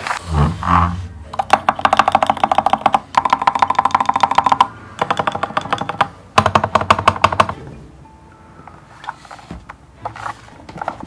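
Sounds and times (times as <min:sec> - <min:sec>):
mechanical keyboard typing: 0:01.3 - 0:07.6.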